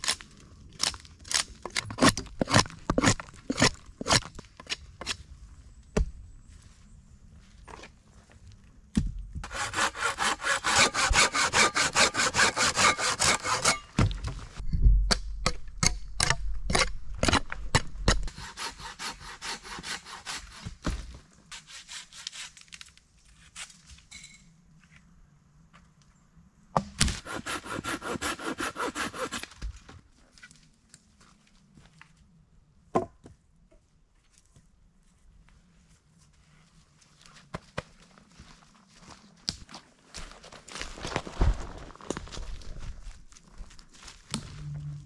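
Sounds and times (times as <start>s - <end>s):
hand saw cutting wood: 9.4s - 13.9s, 18.2s - 20.8s, 21.5s - 22.6s, 27.1s - 29.5s.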